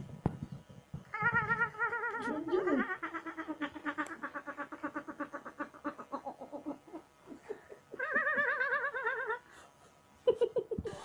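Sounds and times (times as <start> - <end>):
high-pitched squeal of laughter: 1.1 - 9.5
person giggling: 1.2 - 9.4, 10.2 - 11.0.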